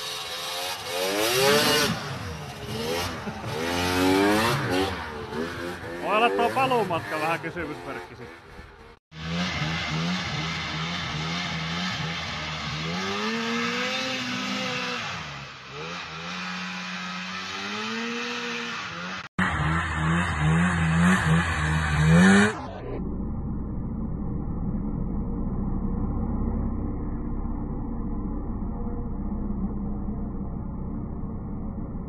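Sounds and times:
snowmobile engine revving: 0.0s - 23.0s.

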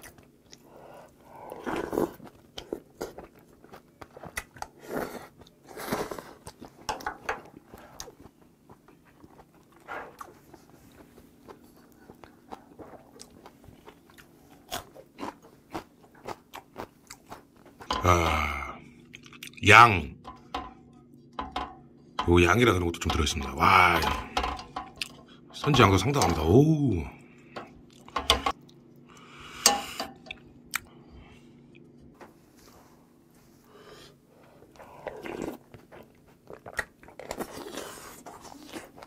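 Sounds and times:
crunching and chewing: 0.0s - 19.6s, 34.4s - 39.0s
slurping soup: 1.5s - 3.1s.

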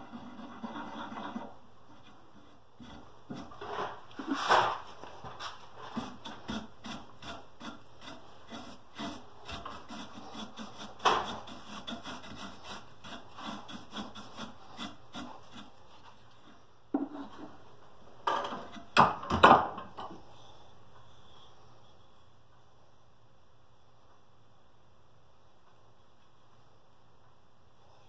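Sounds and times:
rubbing strokes on wood: 0.0s - 17.6s.

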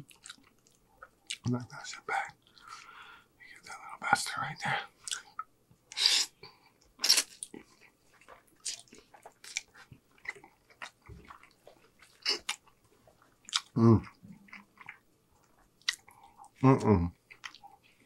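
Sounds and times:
wet chewing and slurping: 7.0s - 16.5s.

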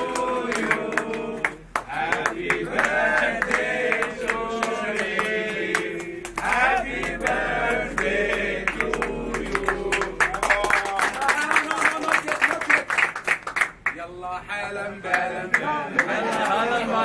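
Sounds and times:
group singing: 0.0s - 10.5s, 14.7s - 17.0s
hand claps: 0.0s - 14.0s, 15.1s - 16.6s.

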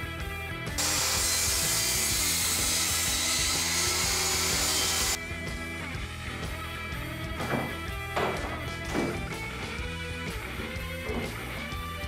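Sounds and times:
background music: 0.0s - 12.0s
table saw cutting wood: 0.8s - 5.2s.

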